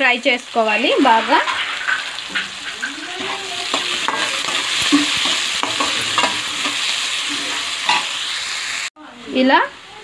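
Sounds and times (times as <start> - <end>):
onions sizzling in hot oil: 0.0 - 10.0
metal spatula scraping pan: 1.0 - 8.4.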